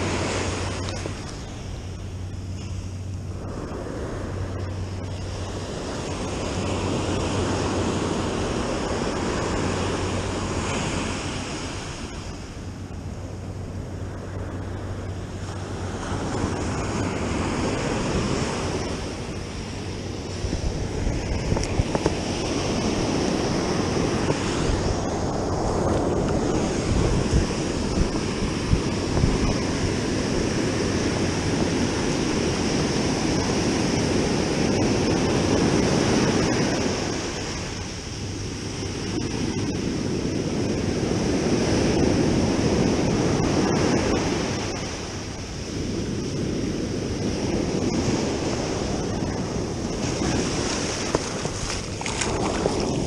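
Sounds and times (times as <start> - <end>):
wind buffeting microphone: 0.0 - 53.0
surf breaking on beach: 14.0 - 53.0.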